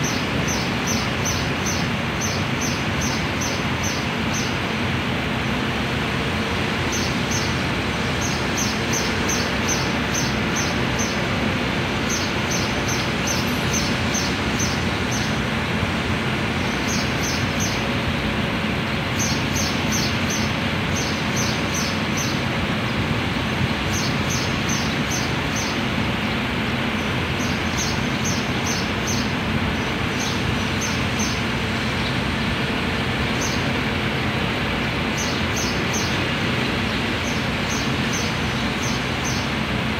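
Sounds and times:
small bird chirping: 0.0 - 4.6, 8.2 - 11.2, 12.0 - 15.4, 16.6 - 17.9, 19.1 - 22.4, 27.0 - 32.2, 35.1 - 36.3, 37.0 - 39.5
city and rail-yard rumble: 0.0 - 39.9.

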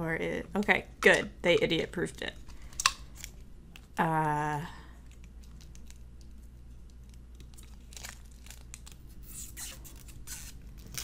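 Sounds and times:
plastic film crinkling and tearing: 5.1 - 11.0.

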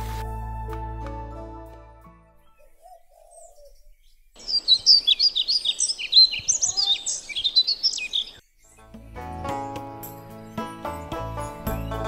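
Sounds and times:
birds chirping and trilling: 2.4 - 12.0.

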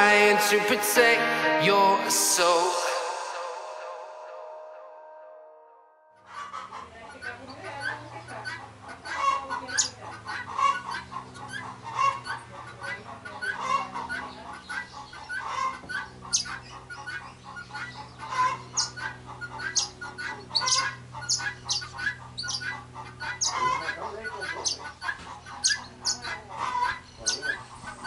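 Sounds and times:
chickens clucking: 6.3 - 28.0
steady low hum: 16.0 - 28.0.

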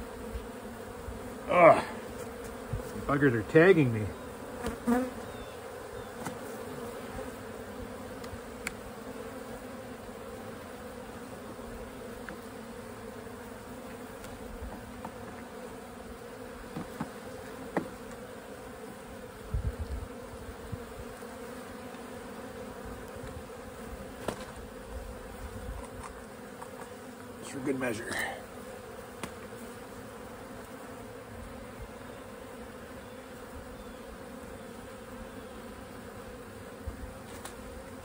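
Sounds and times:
honey bees buzzing: 0.0 - 38.0.

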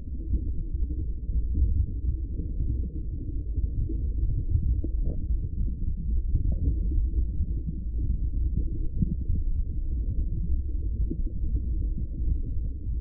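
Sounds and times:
muffled underwater rumble: 0.0 - 13.0.

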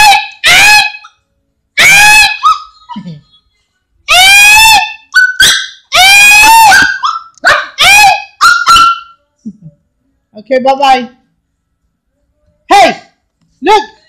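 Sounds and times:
small dog barking: 0.0 - 1.1, 6.5 - 9.1.

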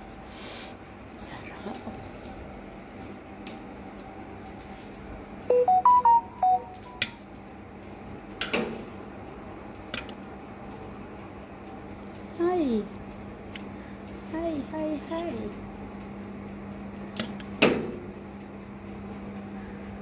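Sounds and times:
steady low hum: 0.0 - 20.0
short electronic beeps: 5.5 - 7.0.

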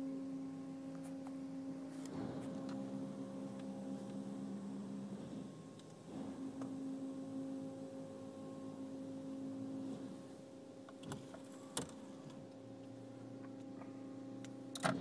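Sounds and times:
muffled car wash motor hum: 0.0 - 15.0.

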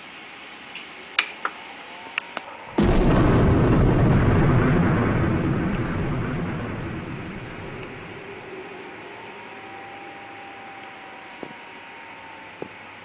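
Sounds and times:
loud explosion: 2.7 - 8.5
deep rumble: 2.8 - 9.0.

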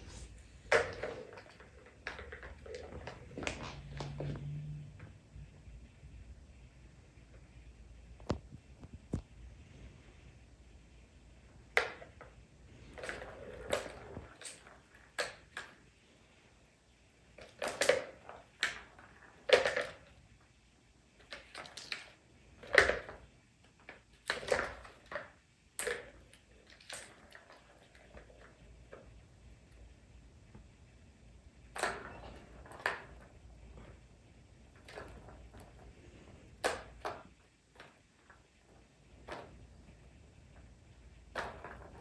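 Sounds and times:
plastic balls clacking and rolling: 0.6 - 4.9, 11.6 - 15.9, 17.4 - 20.5, 21.1 - 29.7, 31.6 - 42.0.

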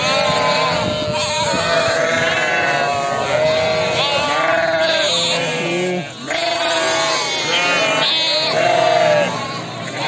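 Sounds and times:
sheep and lambs bleating: 0.0 - 10.0.

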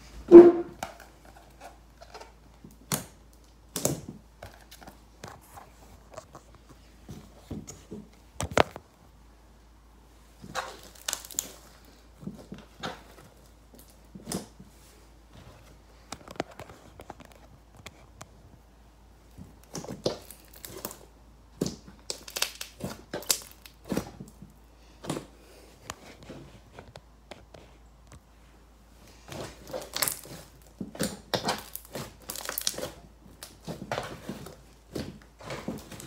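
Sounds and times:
slime squishing and popping: 2.7 - 4.8, 10.4 - 12.0, 19.4 - 24.4, 29.3 - 36.0.

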